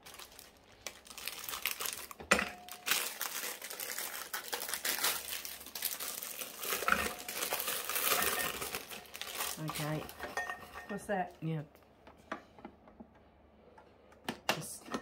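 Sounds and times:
plastic wrapper crinkling: 0.0s - 10.4s.

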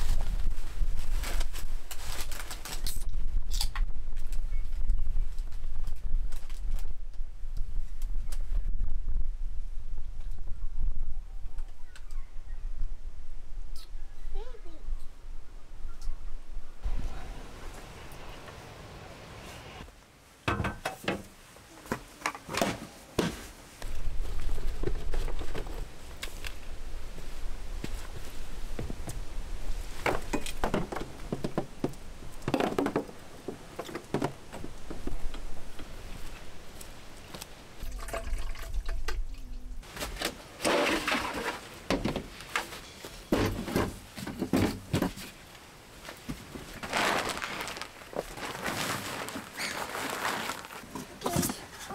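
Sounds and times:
wind rumble on microphone: 0.0s - 2.0s, 3.0s - 18.4s
water running into plastic container: 37.8s - 39.2s
rustling of gear: 46.0s - 51.9s.

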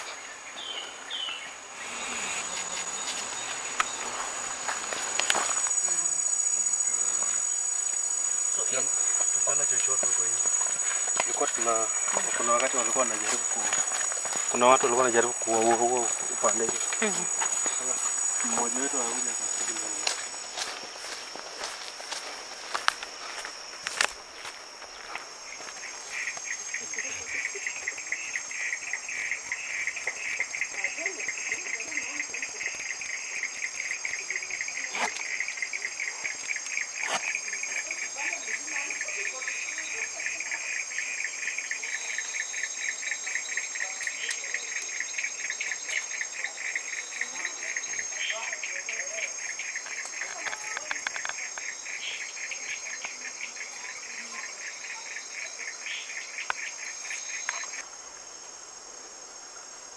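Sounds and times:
insects trilling: 0.0s - 59.9s
high-pitched whine: 1.7s - 27.3s.

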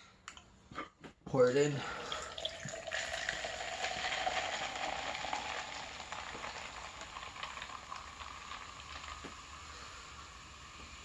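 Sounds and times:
liquid pouring into cup: 2.0s - 9.8s
soda fizzing over ice: 2.0s - 11.0s
rising note as cup fills: 2.2s - 9.6s.

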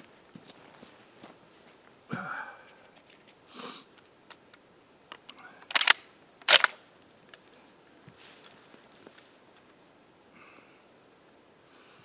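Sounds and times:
small rifle clicks: 4.3s - 7.4s
rattling clicks: 5.1s - 6.8s
soft breath: 10.3s - 11.0s, 11.6s - 12.0s.

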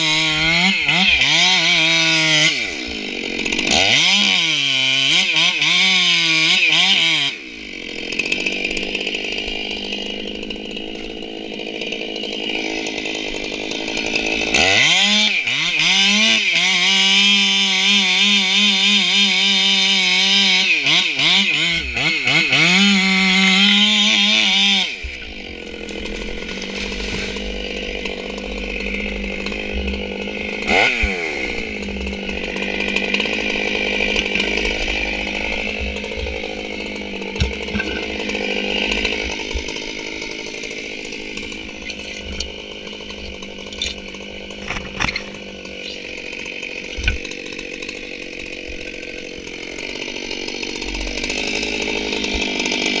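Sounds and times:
chainsaw cutting wood: 0.0s - 53.0s
chainsaw idling: 0.0s - 53.0s.

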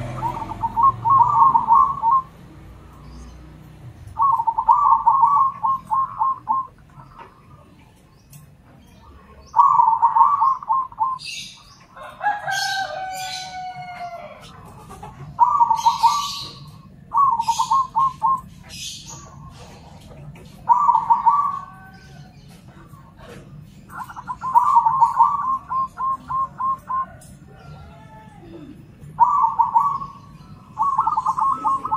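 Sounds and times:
high bird chirps: 0.0s - 7.4s, 15.4s - 19.7s, 29.0s - 31.9s
doves cooing: 0.0s - 31.9s.

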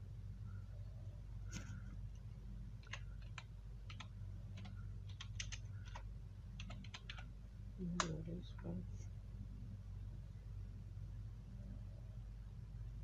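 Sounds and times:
low electrical hum: 0.0s - 13.0s
typing on a keyboard: 2.8s - 7.3s.

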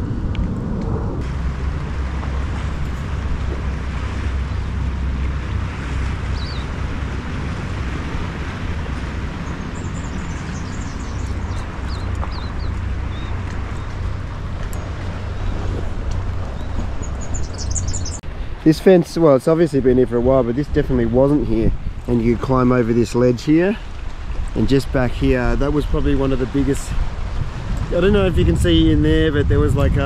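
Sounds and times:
rush of wind and water: 0.0s - 30.0s
wind buffeting microphone: 0.0s - 30.0s
high bird chirps: 6.3s - 6.7s, 16.5s - 18.2s.

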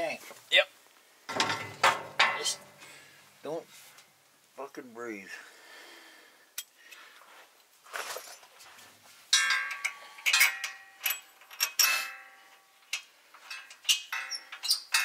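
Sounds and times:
metal clanks with ringing tone: 9.3s - 12.6s.

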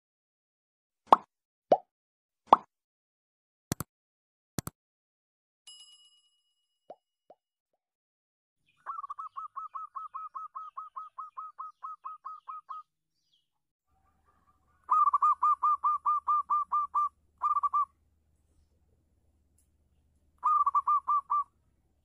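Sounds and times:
dove calling: 8.7s - 12.9s, 14.0s - 18.0s, 20.3s - 21.7s.

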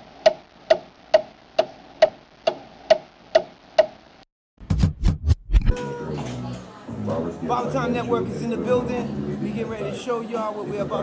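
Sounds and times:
clock ticking: 0.2s - 4.0s.

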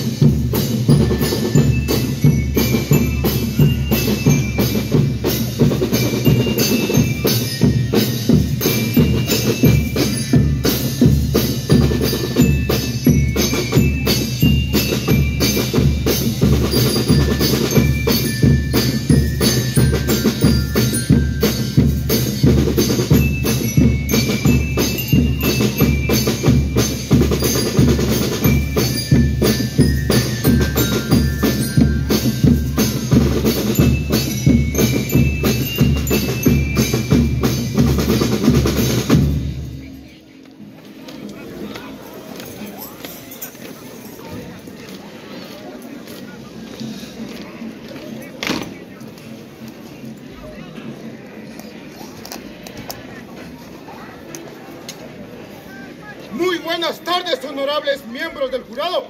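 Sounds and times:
bell lyre melody: 0.0s - 38.7s
bass and snare drums marching beat: 0.0s - 39.9s.

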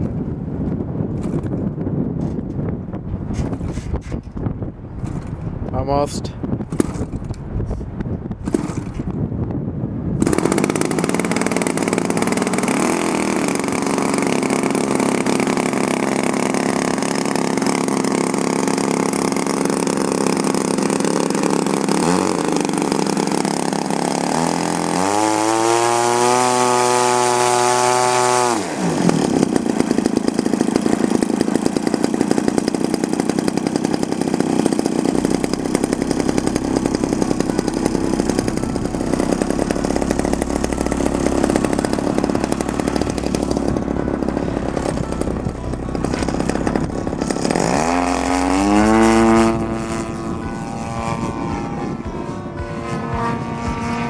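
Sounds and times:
model plane engine running: 10.2s - 52.0s.

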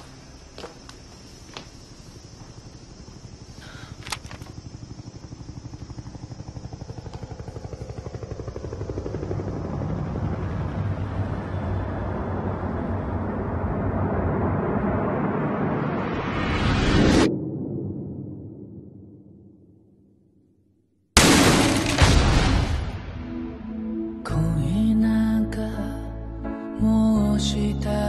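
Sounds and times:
pulsing dramatic score drone: 1.8s - 19.5s, 21.2s - 26.6s
whoosh: 13.2s - 19.1s.

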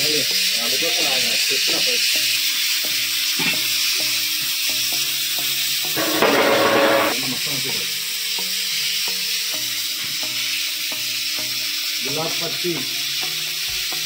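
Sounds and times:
faint background music with beat: 0.0s - 14.0s
gas burner hissing: 0.0s - 14.0s.

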